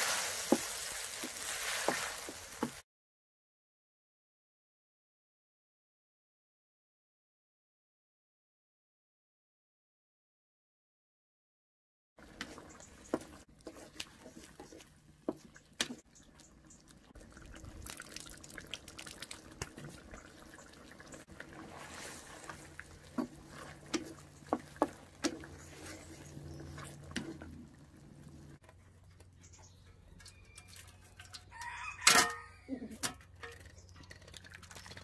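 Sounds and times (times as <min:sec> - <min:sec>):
sauce simmering in a wok: 0:00.0 - 0:02.8
spatula scraping and knocking pan: 0:00.0 - 0:02.8
sauce dripping into a dish: 0:16.8 - 0:21.0.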